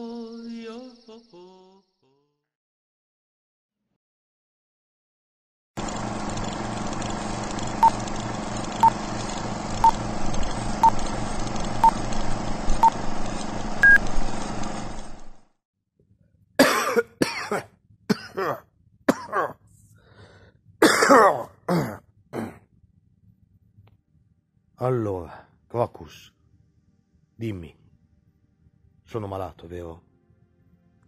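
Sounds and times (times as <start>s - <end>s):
projector hum with crackle: 5.8s - 15.5s
higher beep: 13.8s - 14.0s
short beeps: 13.8s - 14.0s
man coughing: 16.6s - 19.6s, 20.8s - 22.7s.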